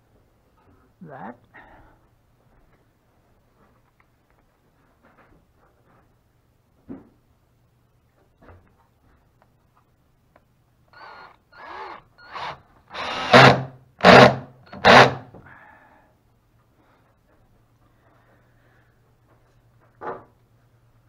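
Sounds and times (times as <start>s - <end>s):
cordless drill driving screws: 11.0s - 15.3s.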